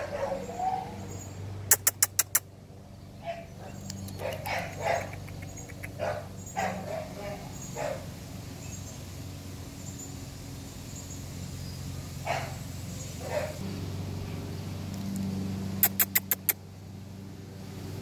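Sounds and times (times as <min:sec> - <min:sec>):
steady low hum: 0:00.0 - 0:18.0
sharp clicks: 0:01.7 - 0:02.5, 0:14.9 - 0:16.6.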